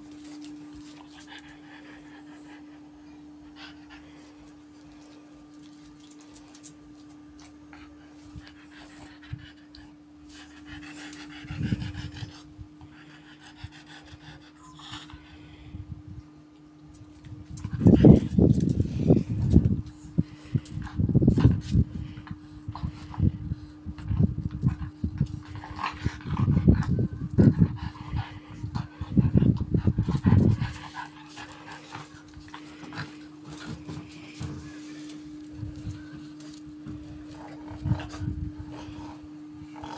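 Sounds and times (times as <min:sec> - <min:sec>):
dog panting: 0:00.7 - 0:04.9, 0:07.8 - 0:15.3, 0:17.6 - 0:34.8.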